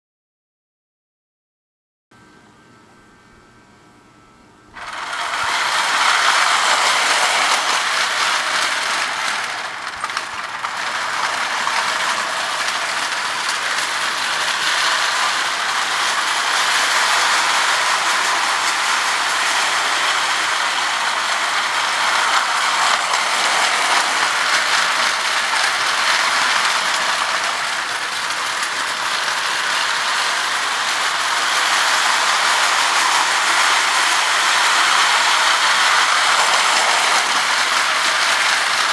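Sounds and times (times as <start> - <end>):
toy train running on track: 4.8 - 38.9.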